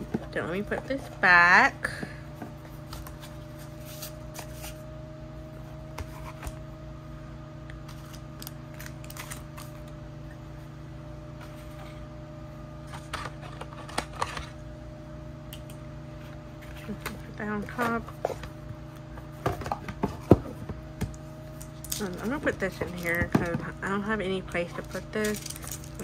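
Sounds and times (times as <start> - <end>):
steady low hum: 0.0 - 26.0
packaging clicks and rustles: 24.8 - 26.0.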